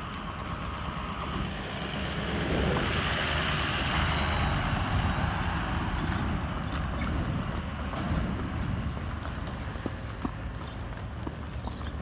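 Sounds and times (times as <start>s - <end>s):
pickup truck engine rumbling: 0.0s - 12.0s.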